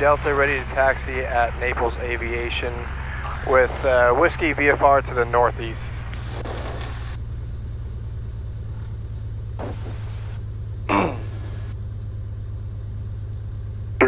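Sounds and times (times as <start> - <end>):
intercom hiss: 0.0 - 7.1
aircraft engine drone: 0.0 - 14.0.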